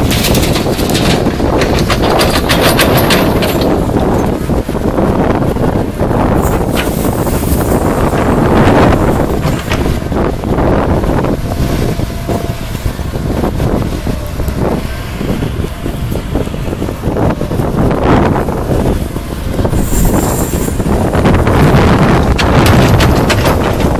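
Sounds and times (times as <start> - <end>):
excavator diesel engine under load: 0.0 - 23.9
wind on microphone: 0.0 - 23.9
dirt and stones scraping: 6.4 - 10.1, 19.6 - 23.9.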